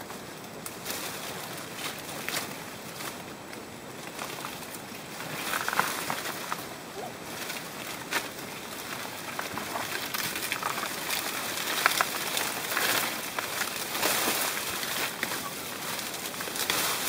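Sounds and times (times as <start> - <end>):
dry leaves rustling and crackling: 0.0 - 17.0.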